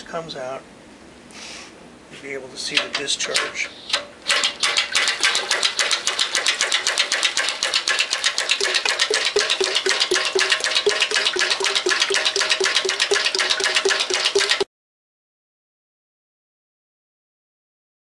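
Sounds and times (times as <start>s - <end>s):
diaphragm pump strokes clacking: 2.6s - 14.7s.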